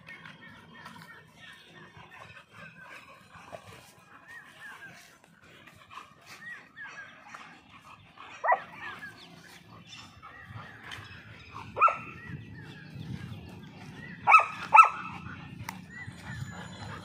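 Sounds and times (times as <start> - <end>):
dogs barking in play: 1.7 - 17.0
dogs yipping softly: 8.2 - 12.4, 13.9 - 17.0.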